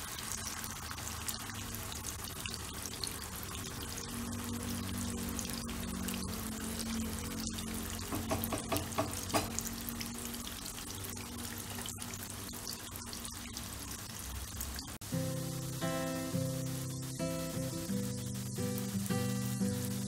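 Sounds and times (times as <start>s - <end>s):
oil sizzling in a frying pan: 0.0s - 20.0s
soft background music: 15.0s - 20.0s.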